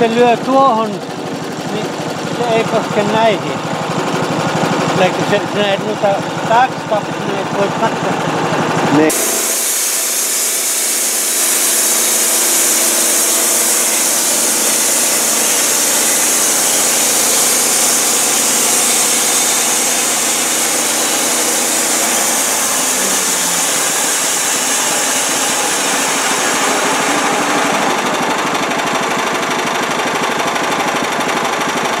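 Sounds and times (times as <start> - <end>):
gasoline engine running: 0.0 - 32.0
band blade hissing through log: 9.1 - 28.3.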